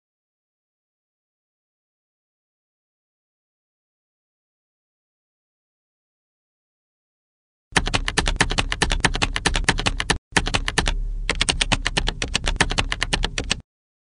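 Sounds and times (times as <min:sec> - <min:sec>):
rapid keyboard typing clicks: 0:07.8 - 0:13.6.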